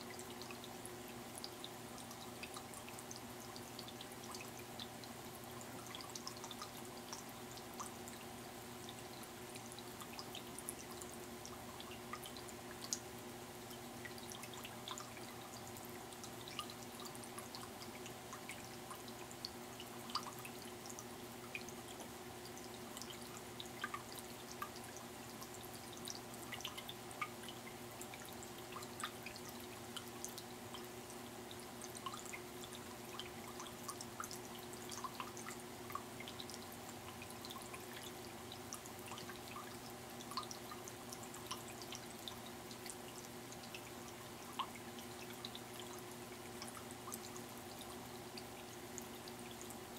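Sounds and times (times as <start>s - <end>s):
faint steady hum: 0.0s - 49.9s
water drips: 0.0s - 49.9s
water trickling over rock: 0.0s - 49.9s.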